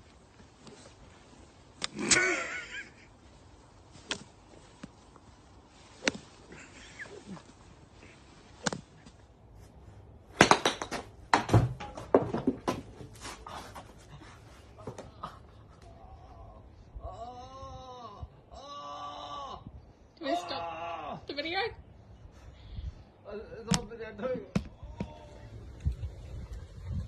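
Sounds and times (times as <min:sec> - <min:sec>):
person crying out: 0:15.9 - 0:19.7.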